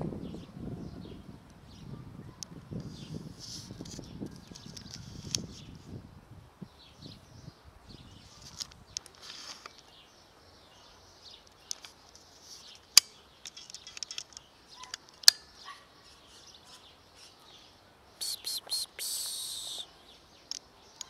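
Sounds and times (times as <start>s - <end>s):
birds chirping: 6.7s - 21.0s.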